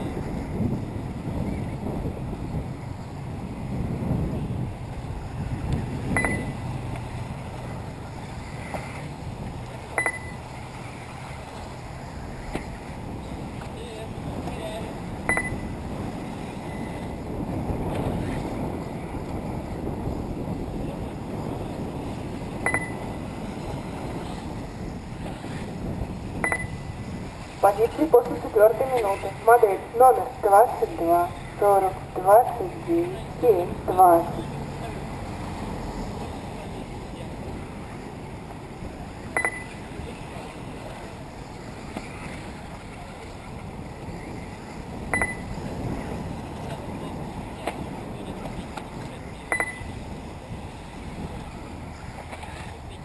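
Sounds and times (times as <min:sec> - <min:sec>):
wind rumbling on microphone: 0:00.0 - 0:53.0
double electronic beep: 0:06.2 - 0:06.6, 0:10.0 - 0:10.4, 0:15.3 - 0:15.7, 0:22.7 - 0:23.0, 0:26.4 - 0:26.8, 0:39.4 - 0:39.7, 0:45.1 - 0:45.5, 0:49.5 - 0:49.9
outdoor track ambience: 0:26.3 - 0:39.9.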